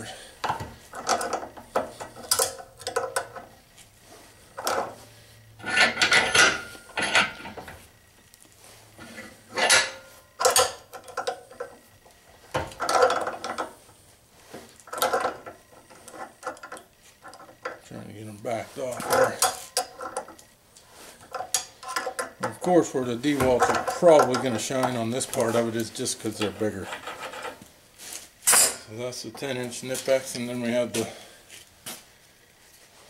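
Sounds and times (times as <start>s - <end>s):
pliers clicking and scraping on nut: 0.5s - 3.5s, 21.2s - 22.6s.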